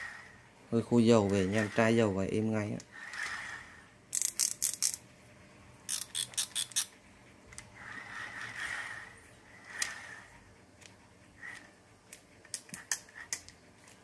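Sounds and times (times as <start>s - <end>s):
reel handle whirring: 2.9s - 5.0s
fishing reel ratchet clicks: 5.9s - 6.9s.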